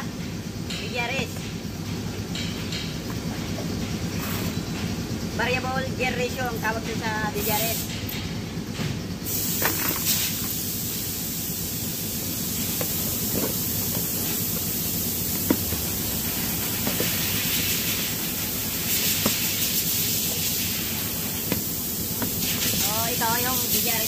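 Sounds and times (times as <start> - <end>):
steady background hiss: 9.2 - 24.0.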